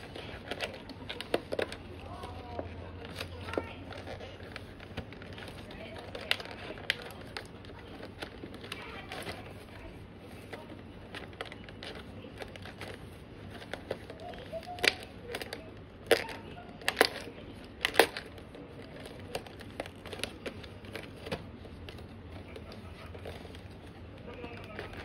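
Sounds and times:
cardboard box clicks and crinkles: 0:00.0 - 0:25.0.

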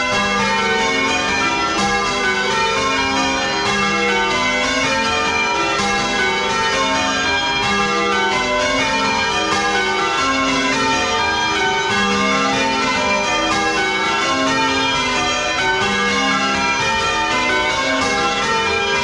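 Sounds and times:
church bells change ringing: 0:00.0 - 0:19.0.

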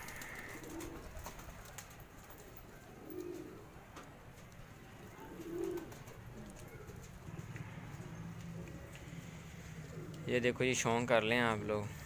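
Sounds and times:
pigeons cooing softly: 0:00.0 - 0:04.0, 0:04.8 - 0:10.7.

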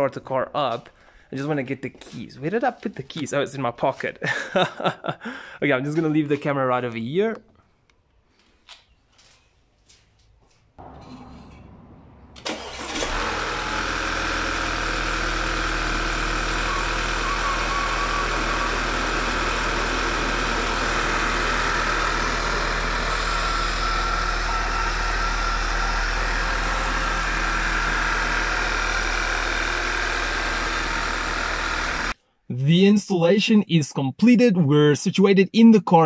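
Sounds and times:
car engine idling: 0:10.8 - 0:32.2
car engine starter cranking: 0:10.8 - 0:32.2.

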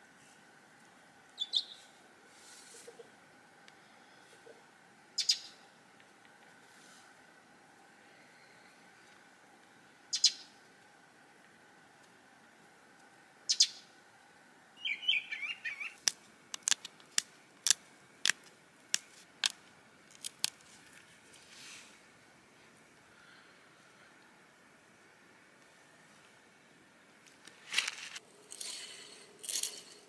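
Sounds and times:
bird chirps: 0:01.4 - 0:01.9, 0:05.2 - 0:05.6, 0:10.1 - 0:10.5, 0:13.5 - 0:13.9, 0:14.8 - 0:16.0
warbling bird call: 0:14.8 - 0:16.0
sharp clicks of stone flaking: 0:16.0 - 0:20.6.

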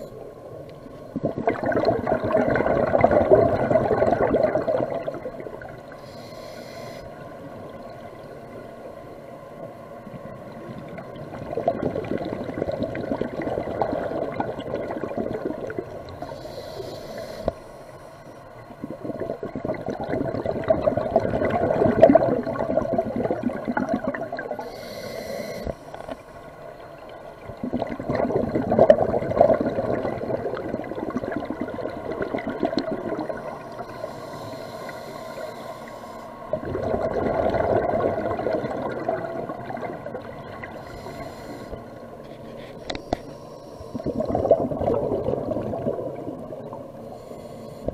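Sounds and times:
bubbling exhalations: 0:01.1 - 0:05.6, 0:11.2 - 0:16.0, 0:18.8 - 0:24.6, 0:27.5 - 0:33.6, 0:36.5 - 0:40.8, 0:43.9 - 0:46.8
diver breathing through regulator: 0:05.9 - 0:07.2, 0:16.2 - 0:18.4, 0:24.6 - 0:26.3, 0:33.6 - 0:36.4, 0:40.8 - 0:44.5, 0:47.0 - 0:47.9.

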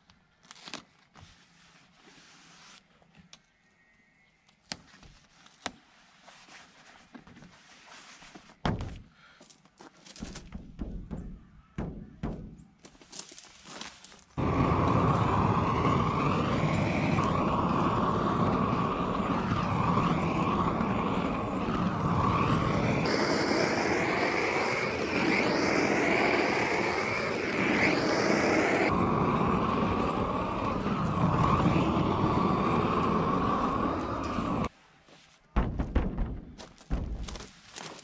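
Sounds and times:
propane torch flame roaring: 0:14.4 - 0:34.7.

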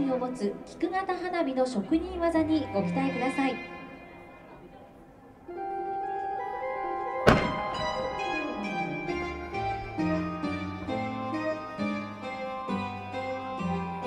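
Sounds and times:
firework launch thump: 0:07.2 - 0:08.1.

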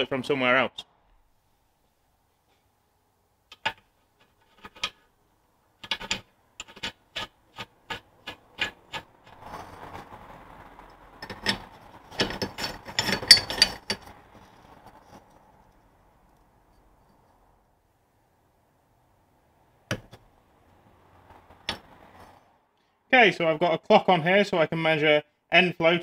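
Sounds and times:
light scraping: 0:03.5 - 0:05.1, 0:05.8 - 0:17.6, 0:21.0 - 0:22.6
spanner clinking on nut: 0:12.2 - 0:14.0.

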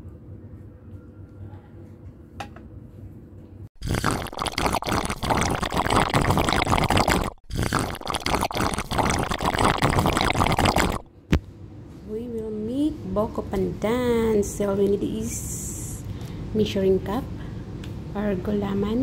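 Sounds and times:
dense liquid splashing: 0:03.8 - 0:11.0.

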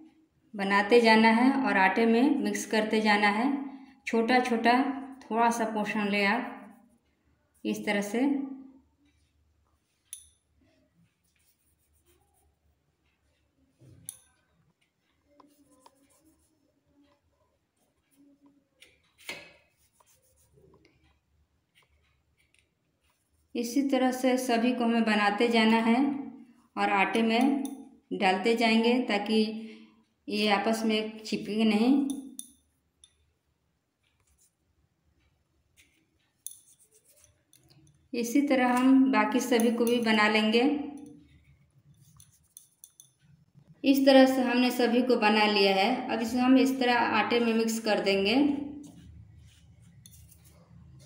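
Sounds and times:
hands rubbing dough: 0:09.1 - 0:13.8, 0:14.4 - 0:18.2, 0:18.9 - 0:24.5, 0:33.9 - 0:40.4, 0:41.0 - 0:43.0, 0:48.2 - 0:51.0.

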